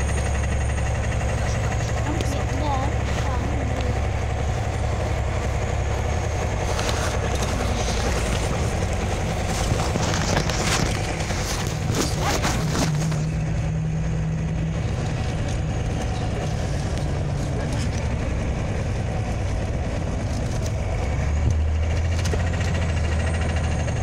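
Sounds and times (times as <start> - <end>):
bus engine drone: 0.0 - 24.0
tyre noise on wet road: 0.0 - 24.0.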